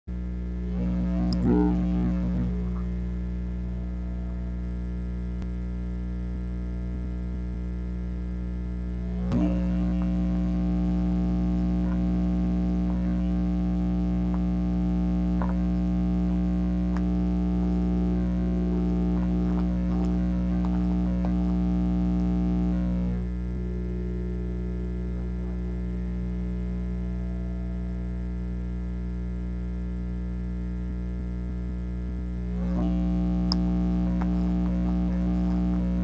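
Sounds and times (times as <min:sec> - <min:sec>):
electrical buzz: 0:00.1 - 0:36.0
click: 0:01.0 - 0:02.4, 0:16.9 - 0:17.8, 0:33.4 - 0:35.8.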